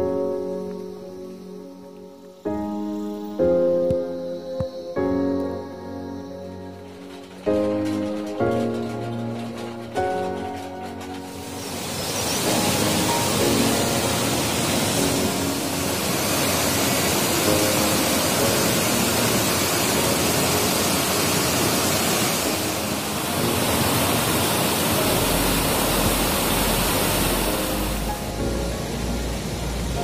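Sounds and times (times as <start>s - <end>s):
faint background music: 0.0s - 30.0s
loud steady rushing noise: 8.8s - 30.0s.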